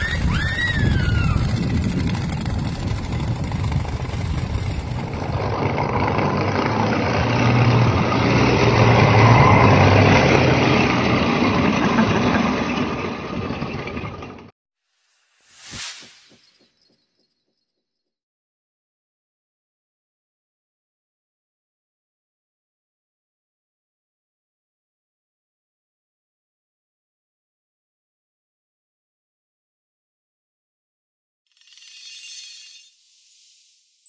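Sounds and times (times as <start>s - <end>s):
low engine rumble: 0.0s - 14.5s
short swoosh: 15.0s - 17.0s.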